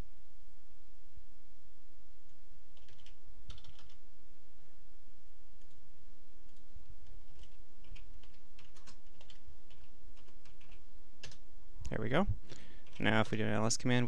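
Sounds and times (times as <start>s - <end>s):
steady low hum: 0.0s - 14.0s
keyboard typing: 2.8s - 4.0s, 6.5s - 11.4s, 12.8s - 13.3s.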